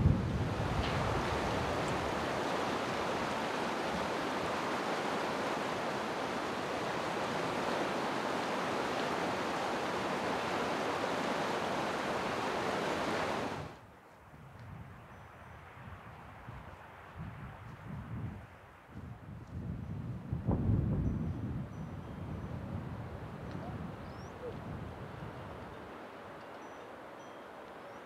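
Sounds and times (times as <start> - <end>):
river rushing: 0.4 - 13.8, 25.0 - 28.0.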